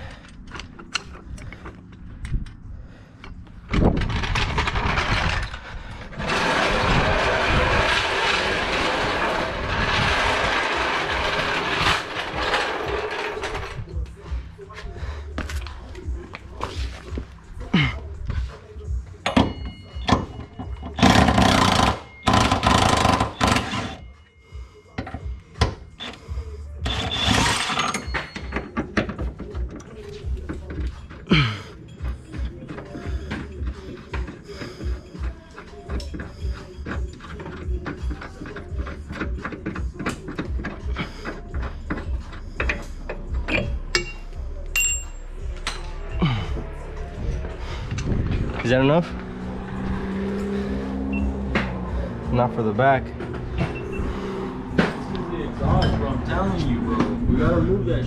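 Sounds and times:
power tool running: 0:21.0 - 0:24.0
metal hand tools clinking: 0:35.5 - 0:46.1
short metallic ring: 0:44.0 - 0:45.9.

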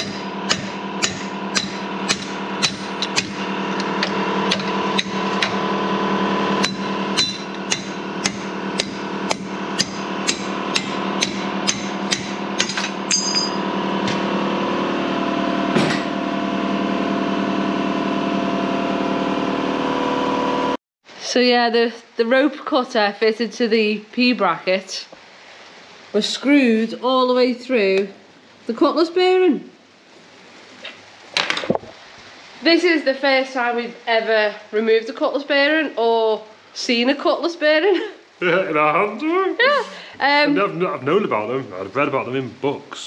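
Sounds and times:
hammer striking steel tube: 0:00.0 - 0:05.6, 0:06.6 - 0:14.2.

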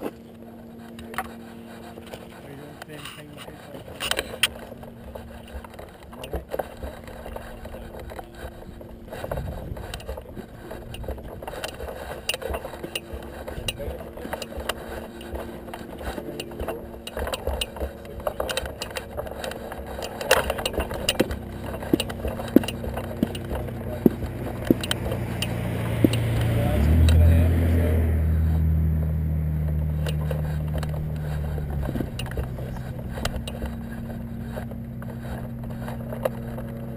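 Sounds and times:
frame clicking and rattling: 0:00.0 - 0:26.5
footsteps on gravel: 0:00.0 - 0:27.3, 0:28.3 - 0:36.9
faint voices: 0:00.0 - 0:28.7, 0:29.6 - 0:36.9
low wind rumble: 0:03.9 - 0:36.9.

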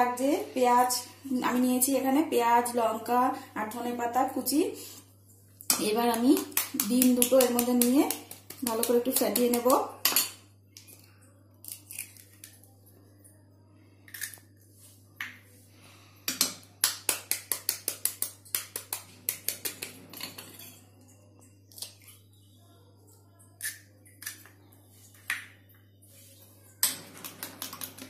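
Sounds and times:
metal spoon tapping eggshells: 0:05.7 - 0:10.9, 0:16.3 - 0:20.6, 0:26.8 - 0:28.0.

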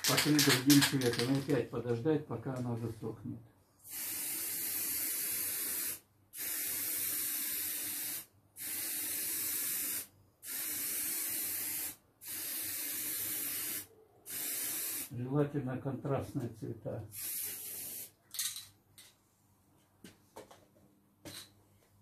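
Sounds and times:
aerosol spray can hissing: 0:03.9 - 0:15.1, 0:17.1 - 0:18.2.

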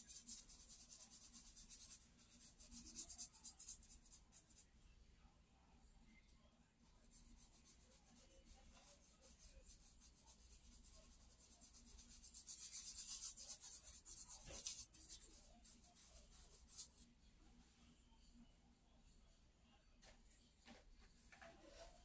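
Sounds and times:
charcoal strokes on paper: 0:00.0 - 0:04.7, 0:06.8 - 0:17.1.

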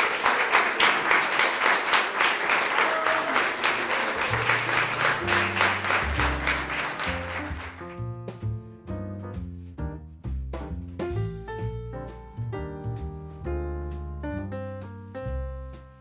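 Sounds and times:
audience applause: 0:00.0 - 0:08.1
music with low bass notes: 0:05.2 - 0:16.0.

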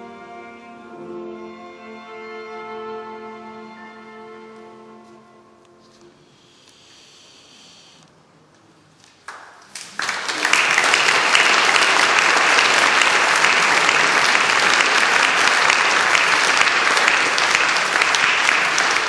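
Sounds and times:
audience applauding: 0:09.2 - 0:19.0.

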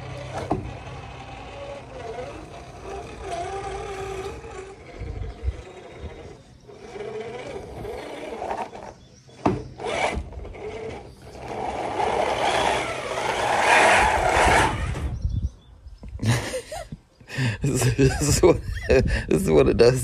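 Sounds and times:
small electric motor whirring: 0:00.0 - 0:15.4.

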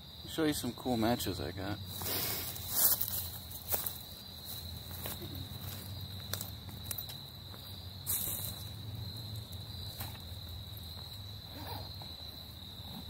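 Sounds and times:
insects trilling: 0:00.0 - 0:13.0
footsteps in dry leaves: 0:01.9 - 0:09.2.

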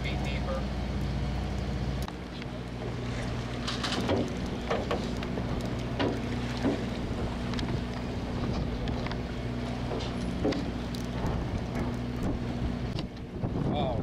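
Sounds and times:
boat engine droning: 0:00.0 - 0:14.0
water splashes: 0:00.0 - 0:14.0
wind buffeting microphone: 0:03.0 - 0:14.0.

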